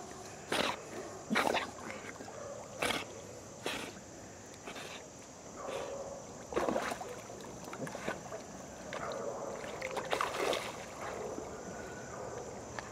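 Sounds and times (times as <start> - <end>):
water splashing and sloshing: 6.2 - 12.9.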